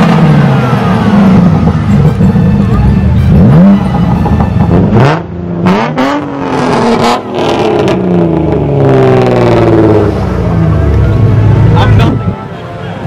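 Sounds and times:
sports car engines revving: 0:00.0 - 0:12.4.

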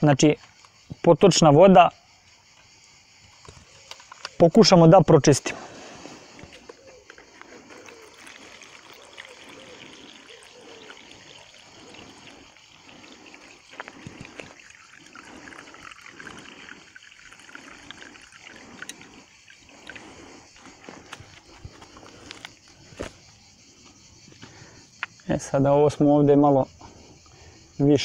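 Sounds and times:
water pouring and splashing: 0:07.3 - 0:22.5.

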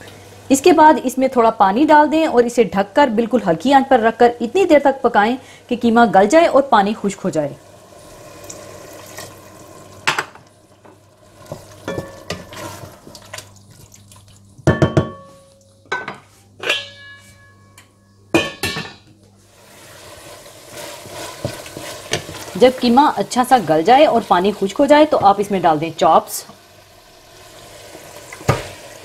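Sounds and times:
metal cookware clinking: 0:11.8 - 0:12.5, 0:14.7 - 0:19.1.

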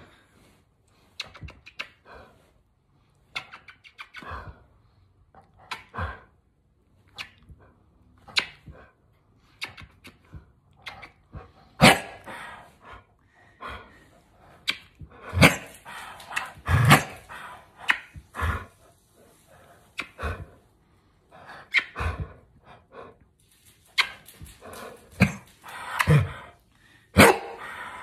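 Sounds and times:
kissing smacks: 0:01.2 - 0:02.0, 0:03.3 - 0:04.3, 0:05.6 - 0:05.9, 0:07.1 - 0:07.5, 0:08.2 - 0:08.7, 0:09.5 - 0:11.3, 0:14.6 - 0:18.2, 0:20.0 - 0:20.2
dog barking: 0:11.8 - 0:12.2, 0:27.2 - 0:27.6.

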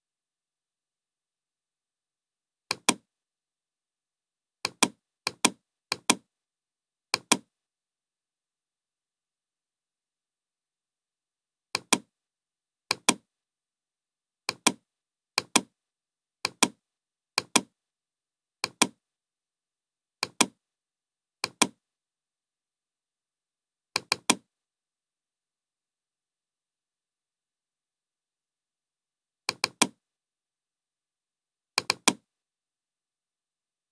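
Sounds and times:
computer mouse clicking: 0:02.7 - 0:03.0, 0:04.6 - 0:06.2, 0:07.2 - 0:07.5, 0:11.8 - 0:12.1, 0:12.9 - 0:13.2, 0:14.5 - 0:14.8, 0:15.4 - 0:15.7, 0:16.4 - 0:16.8, 0:17.4 - 0:17.7, 0:18.6 - 0:19.0, 0:20.2 - 0:20.6, 0:21.4 - 0:21.8, 0:24.0 - 0:24.4, 0:29.5 - 0:30.0, 0:31.8 - 0:32.2.

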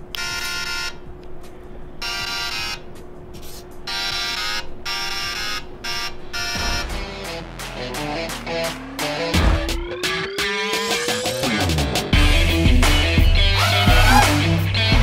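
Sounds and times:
buzzy electronic beeps: 0:03.9 - 0:07.3
music: 0:06.5 - 0:15.0.

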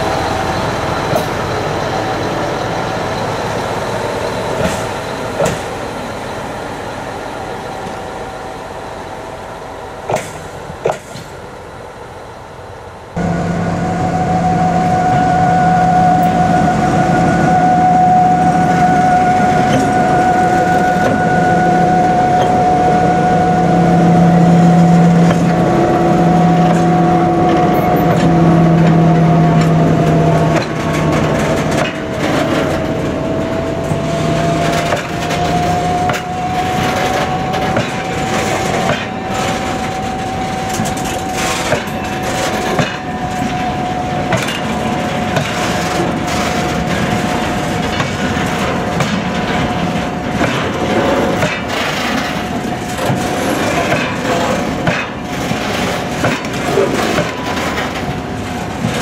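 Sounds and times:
train wheels clicking over rail joints: 0:00.0 - 0:05.9, 0:10.0 - 0:11.5, 0:24.5 - 0:59.0
diesel locomotive engine: 0:00.0 - 0:59.0
steady high-pitched tone: 0:13.2 - 0:45.4.

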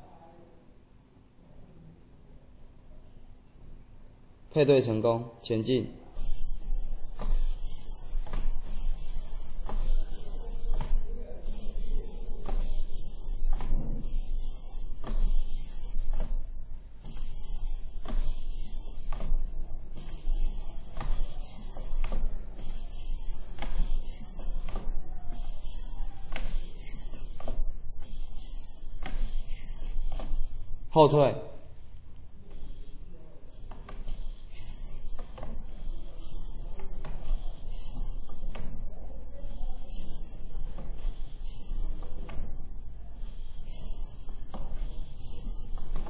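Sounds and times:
servo motors whirring and clicking: 0:17.0 - 0:30.4.

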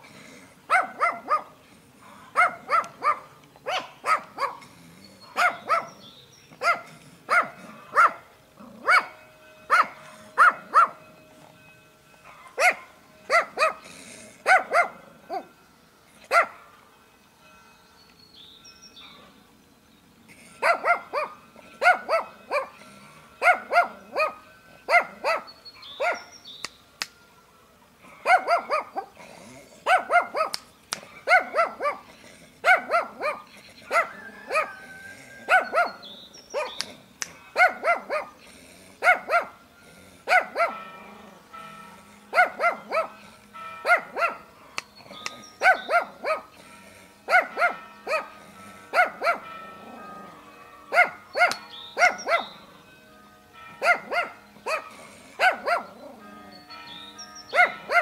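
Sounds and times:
dog barking aggressively: 0:00.7 - 0:01.6, 0:02.3 - 0:04.6, 0:05.4 - 0:06.0, 0:06.6 - 0:08.2, 0:08.8 - 0:11.0, 0:12.6 - 0:13.8, 0:14.4 - 0:15.0, 0:16.3 - 0:16.6, 0:20.6 - 0:22.8, 0:23.4 - 0:26.2, 0:28.2 - 0:29.1, 0:29.8 - 0:36.0, 0:36.6 - 0:36.8, 0:37.5 - 0:38.4, 0:39.0 - 0:39.5, 0:40.3 - 0:40.8, 0:42.3 - 0:43.2, 0:43.9 - 0:44.4, 0:45.6 - 0:46.5, 0:47.3 - 0:48.3, 0:48.9 - 0:49.5, 0:50.9 - 0:52.5, 0:53.8 - 0:55.9, 0:57.6 - 0:58.0.

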